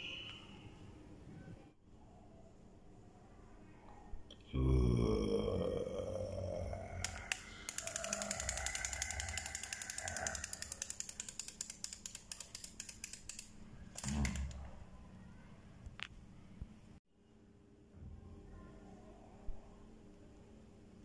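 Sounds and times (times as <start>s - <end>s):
toy mechanism clicking: 7.0s - 14.6s.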